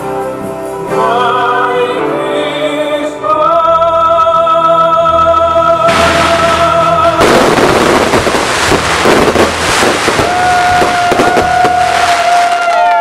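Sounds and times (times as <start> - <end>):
fireworks bangs and crackles: 5.9 - 13.0.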